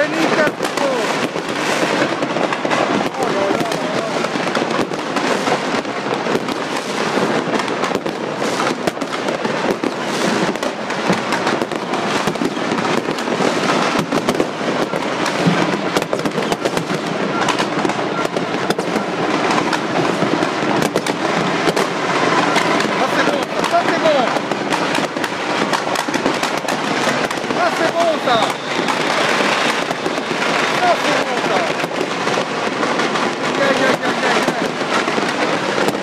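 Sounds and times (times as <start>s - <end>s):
fireworks crackling and banging: 0.0s - 36.0s.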